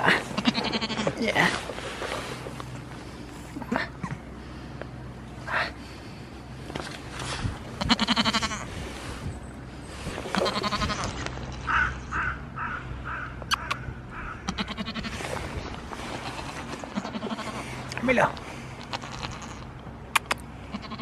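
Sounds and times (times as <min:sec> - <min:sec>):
goats bleating: 0:00.0 - 0:01.6, 0:07.8 - 0:08.7, 0:10.3 - 0:12.2, 0:14.2 - 0:15.2, 0:16.0 - 0:17.7, 0:18.8 - 0:19.7, 0:20.7 - 0:21.0.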